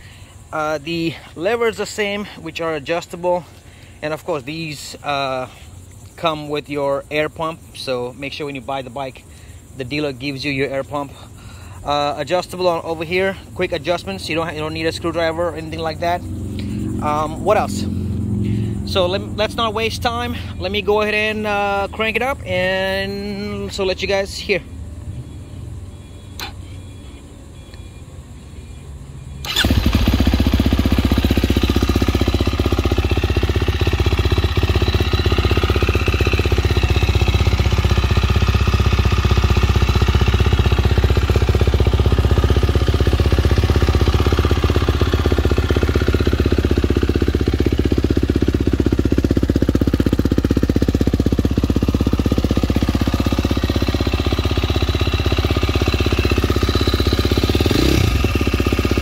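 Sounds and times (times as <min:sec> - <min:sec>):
motorcycle engine starting and running: 0:00.0 - 0:27.9, 0:29.4 - 0:59.0.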